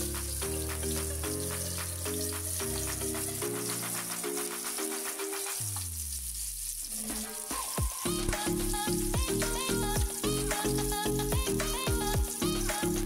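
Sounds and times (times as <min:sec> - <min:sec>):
onion sizzling in oil: 0:00.0 - 0:09.1
electronic music with beat: 0:00.0 - 0:13.0.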